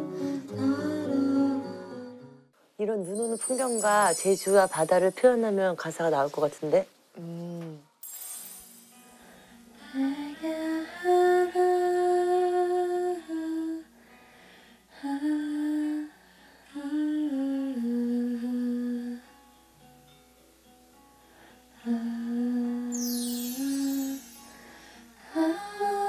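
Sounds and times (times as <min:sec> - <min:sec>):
woman humming a melody: 0:07.2 - 0:08.0, 0:16.7 - 0:19.3, 0:21.8 - 0:24.5, 0:25.2 - 0:26.0.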